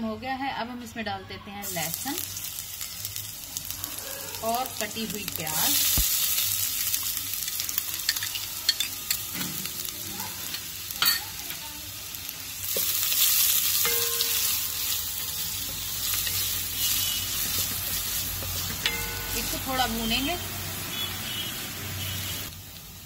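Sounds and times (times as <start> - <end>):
onion and garlic sizzling: 0.2 - 23.0
spatula scraping and tapping pan: 15.6 - 19.6.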